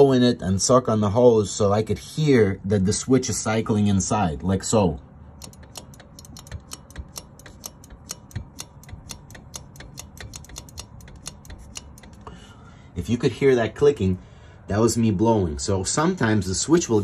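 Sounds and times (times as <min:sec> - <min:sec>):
pressure switch clicking rapidly: 0:05.4 - 0:12.2.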